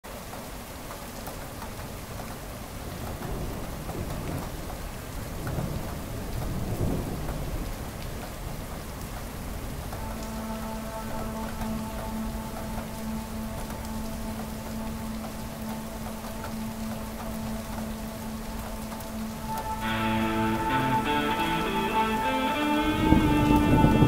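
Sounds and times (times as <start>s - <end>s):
steady rain: 0.0s - 24.0s
low thunder roll: 3.2s - 8.3s
sustained music notes: 10.0s - 24.0s.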